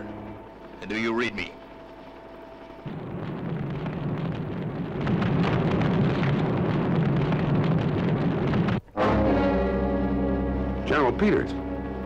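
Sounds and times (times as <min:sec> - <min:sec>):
rumbling crash: 0:02.4 - 0:12.0.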